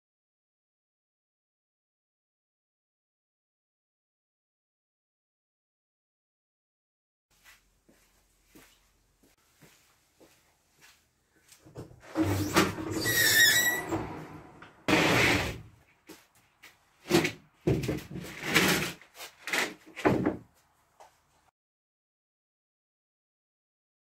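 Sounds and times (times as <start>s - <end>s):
garage door squeaking and rattling: 12.0s - 15.7s
wooden sheet scraping and knocking: 13.8s - 15.8s, 17.0s - 20.5s.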